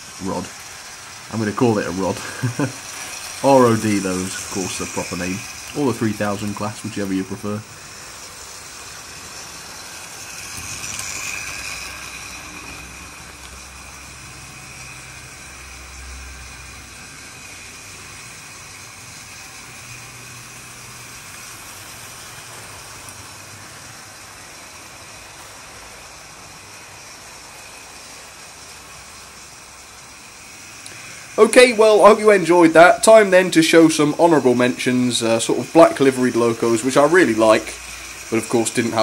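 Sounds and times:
model trains running on track: 0.0 - 39.0.

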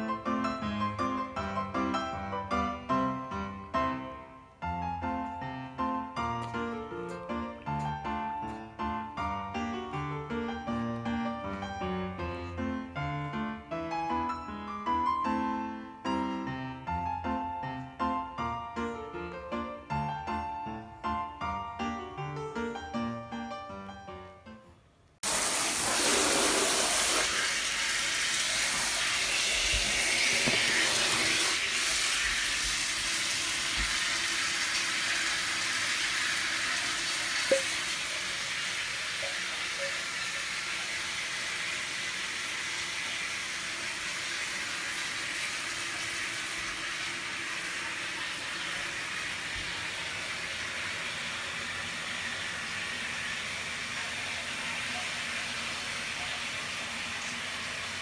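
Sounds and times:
shower water running into bath: 25.2 - 58.0.

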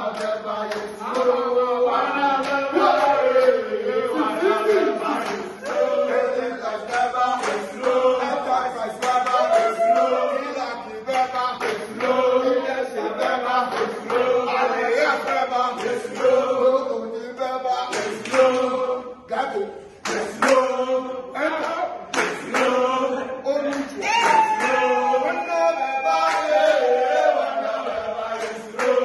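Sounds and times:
group chanting a cheer: 0.0 - 29.0
hand claps: 0.1 - 1.4, 2.4 - 3.6, 5.1 - 5.8, 6.8 - 10.2, 11.1 - 12.3, 13.2 - 14.4, 15.2 - 16.4, 17.9 - 18.8, 20.0 - 20.7, 21.6 - 22.9, 23.7 - 24.9, 26.2 - 26.7, 28.3 - 29.0.

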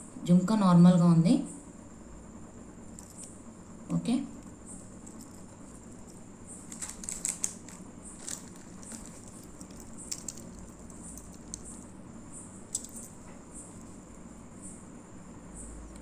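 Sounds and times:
small metal clicks: 5.0 - 11.8, 12.7 - 13.2
plastic packet rustling: 6.6 - 11.6.

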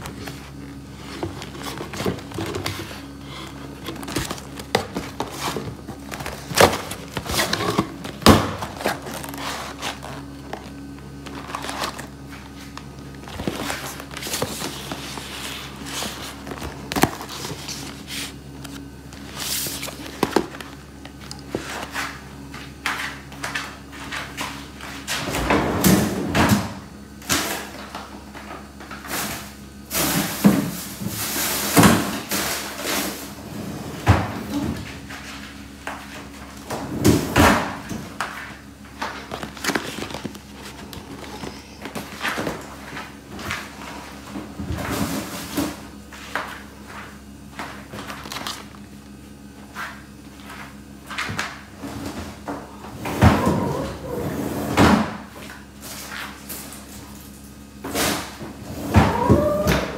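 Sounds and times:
cardboard scraping and rustling: 0.0 - 23.2, 32.2 - 48.8.

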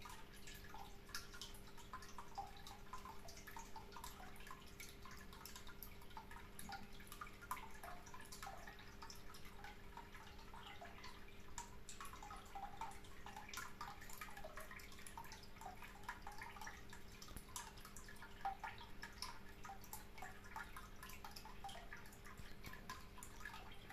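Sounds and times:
water trickling and dripping: 0.0 - 23.9.

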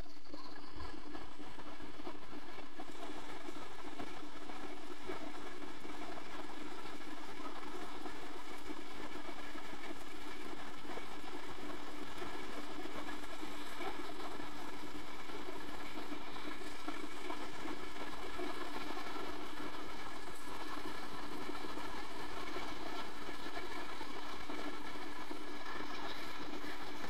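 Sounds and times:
droning machine hum: 0.0 - 27.0.

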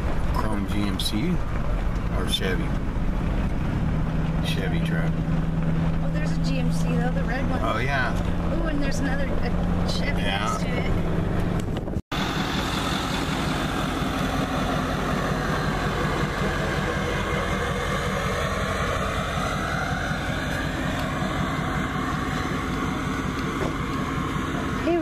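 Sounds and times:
truck engine idling: 0.0 - 25.0.

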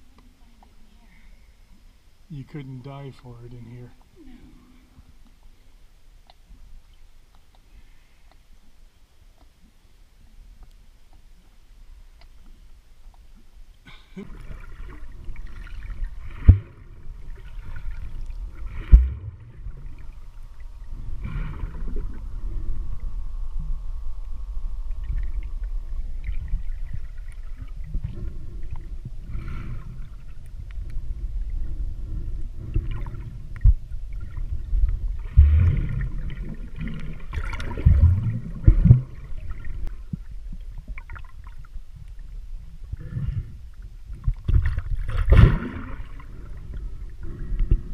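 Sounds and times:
steady low rumble: 13.8 - 47.9
water sloshing and splashing: 14.2 - 22.5, 24.9 - 42.4, 43.7 - 47.9.

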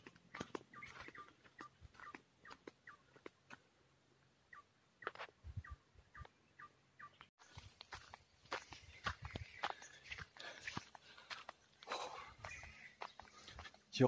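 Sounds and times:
footsteps on dirt path: 0.0 - 3.8, 7.2 - 14.0
birds chirping: 0.0 - 14.0.

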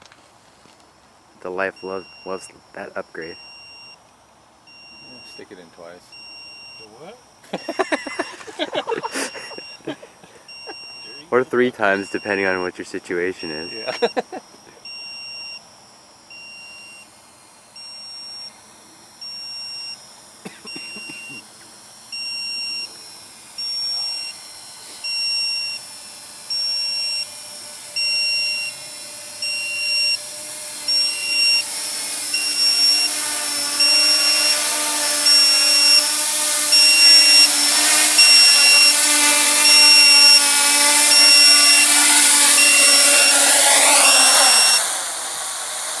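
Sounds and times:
drone propellers whirring: 4.6 - 46.0
high electronic beep: 13.3 - 15.6, 29.4 - 30.2, 30.9 - 36.0, 36.7 - 45.0.

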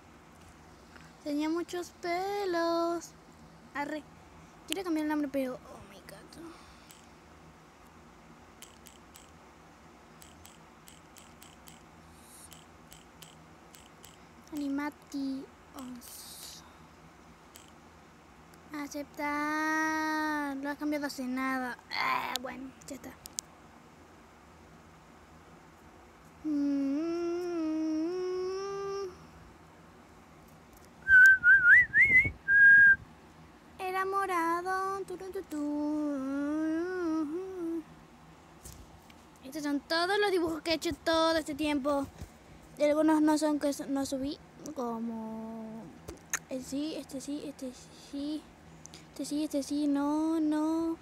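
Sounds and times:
person humming a tune: 26.4 - 29.3, 35.5 - 37.9
wavering rising whistle: 31.0 - 33.0.

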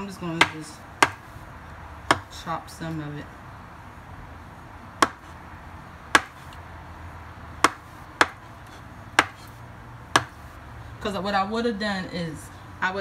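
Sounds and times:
knife chopping on wooden board: 0.4 - 1.3, 2.1 - 2.3, 5.0 - 5.3, 6.1 - 6.5, 7.6 - 9.6, 10.2 - 10.4.

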